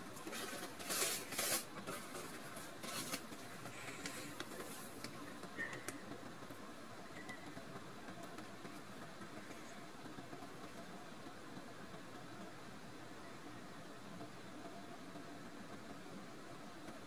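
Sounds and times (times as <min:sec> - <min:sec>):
kitten rustling a sheet: 0:00.0 - 0:05.0.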